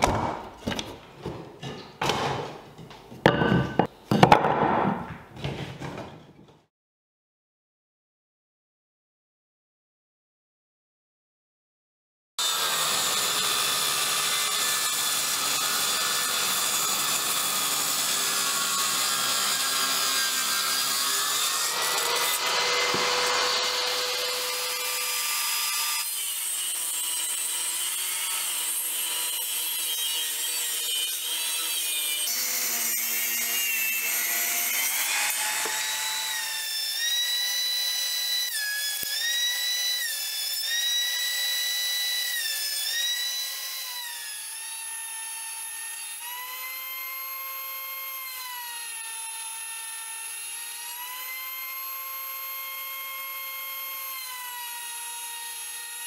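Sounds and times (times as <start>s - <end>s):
power tools cutting and sanding wood: 12.4s - 56.0s.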